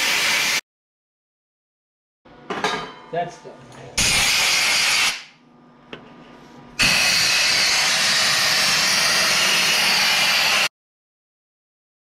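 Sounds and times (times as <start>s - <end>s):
air blow gun hissing: 6.8s - 10.7s.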